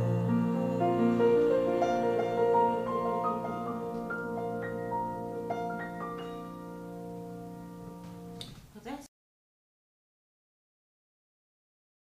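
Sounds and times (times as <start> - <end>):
instrumental keyboard music: 0.0 - 8.4.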